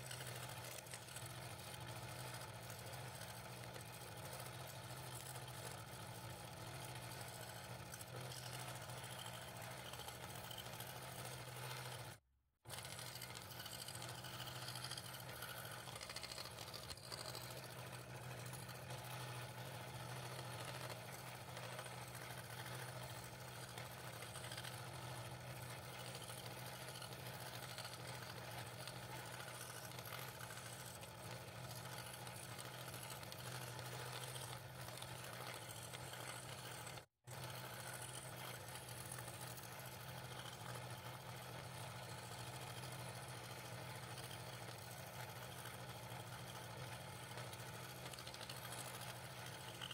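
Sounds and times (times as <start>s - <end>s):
scroll saw cutting thin wood: 12.7s - 40.8s.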